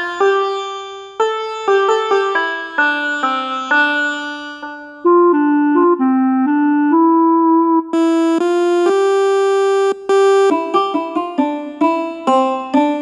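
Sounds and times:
electronic phone ringtone melody: 8.0 - 10.6.

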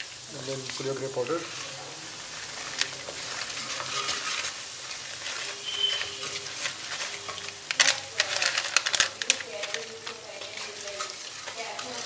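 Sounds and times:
spices sizzling in hot oil: 0.0 - 12.0
wooden spatula scraping a pan: 0.6 - 12.0.

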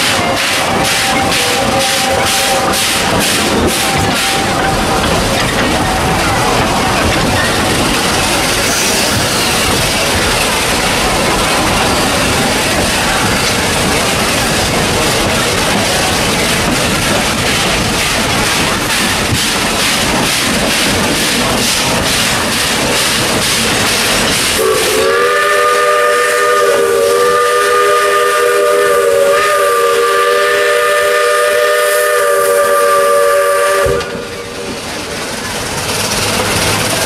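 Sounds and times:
steam locomotive chuffing and hissing: 0.0 - 37.0
steam whistle chord: 24.6 - 34.3.

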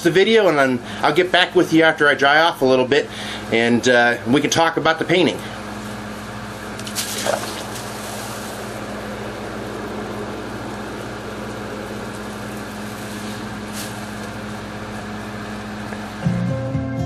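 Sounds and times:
low steady hum: 0.0 - 16.9
wind: 5.6 - 16.0
rain: 6.8 - 16.1
water running: 6.8 - 16.1.

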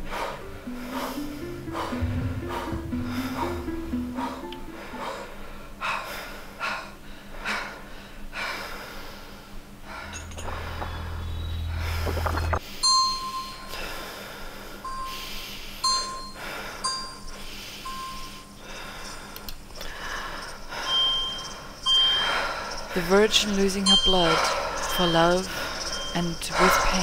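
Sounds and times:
low hum: 0.0 - 6.0, 9.8 - 12.7
small bell dings: 12.8 - 13.8, 15.8 - 18.5.

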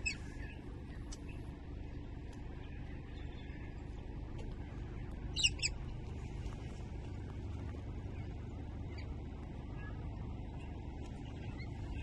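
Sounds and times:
low outdoor rumble: 0.0 - 12.0
bird chirping: 5.3 - 5.8.

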